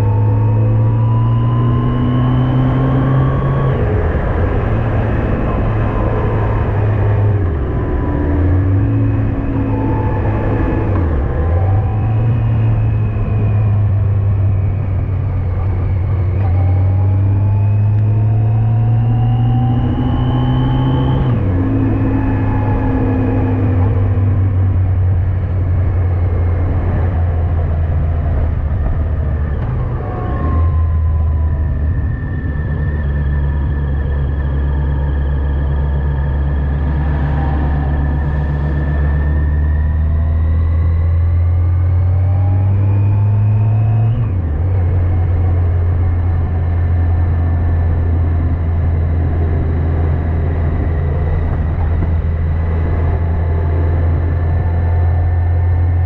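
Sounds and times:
motorcycle engine running: 0:44.5 - 0:56.0.

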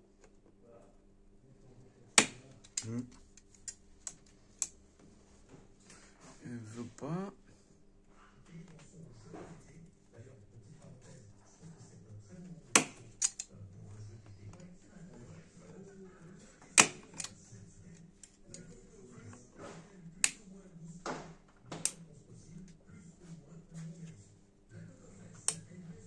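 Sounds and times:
plastic and metal clicks and snaps: 0:12.7 - 0:13.5, 0:16.8 - 0:17.4, 0:21.7 - 0:22.0.

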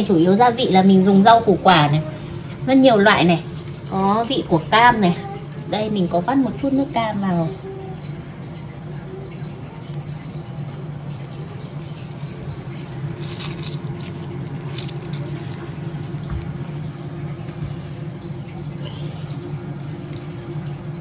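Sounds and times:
juice dripping into a bowl: 0:00.0 - 0:21.0
steady low hum: 0:00.0 - 0:21.0
wet squelches: 0:08.1 - 0:21.0.

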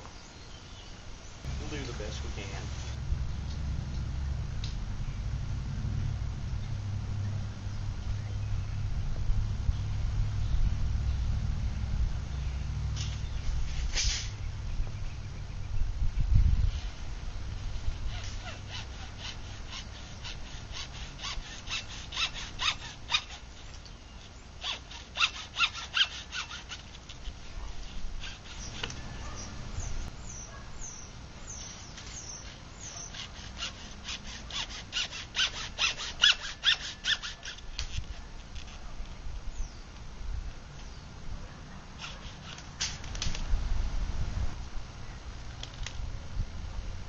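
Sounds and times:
hand saw cutting plastic pipe: 0:18.1 - 0:23.5, 0:24.6 - 0:27.4, 0:32.0 - 0:38.0.

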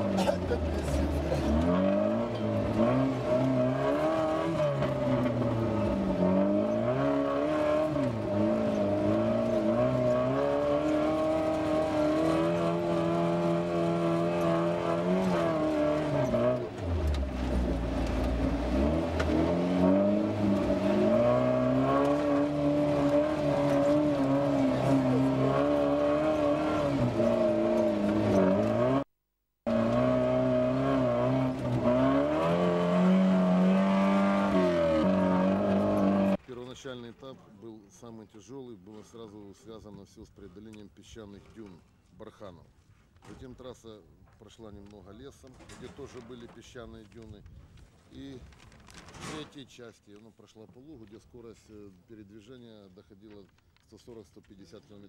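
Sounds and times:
car engine revving: 0:00.0 - 0:29.1, 0:29.7 - 0:36.4.

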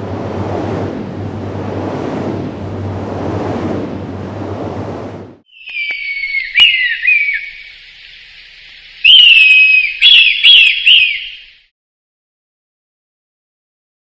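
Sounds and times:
high-pitched whistle: 0:05.5 - 0:07.6, 0:09.0 - 0:11.3.

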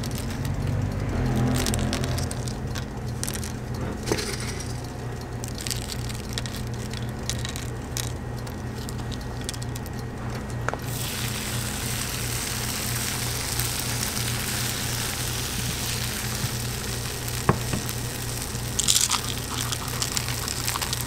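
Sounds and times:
steady low hum: 0:00.0 - 0:21.0
cereal rings dropping into iron: 0:01.2 - 0:05.0.

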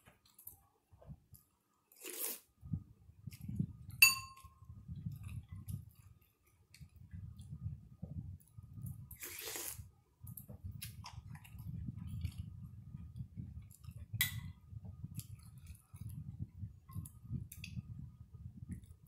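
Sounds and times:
soup slurped from spoon: 0:01.9 - 0:02.5, 0:09.1 - 0:09.9
ceramic spoon clinking bowl: 0:04.0 - 0:04.6.

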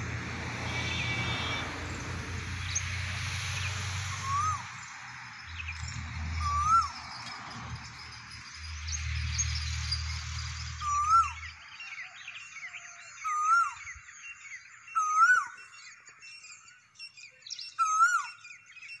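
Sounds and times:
small birds chirping: 0:00.6 - 0:19.0
cuckoo calling: 0:06.2 - 0:07.3, 0:09.4 - 0:14.0, 0:14.9 - 0:15.6.

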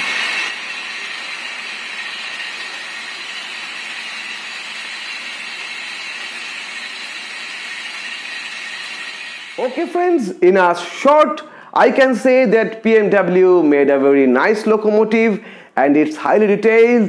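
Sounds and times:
model train whirring hiss: 0:00.0 - 0:09.7.

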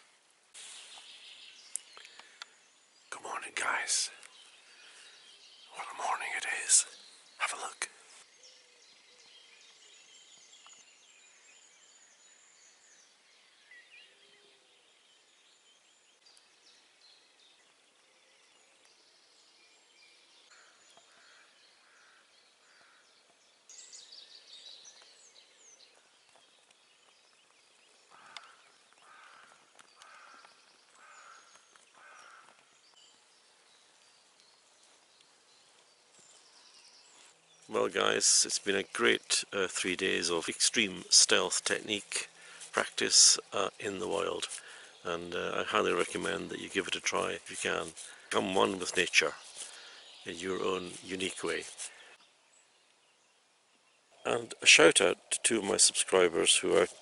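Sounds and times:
birds chirping and trilling: 0:00.0 - 0:57.0
repeated bird calls: 0:00.8 - 0:57.0.

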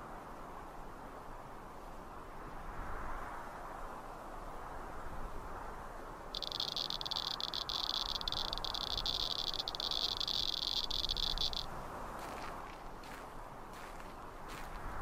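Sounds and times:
insect buzzing: 0:06.4 - 0:11.7.

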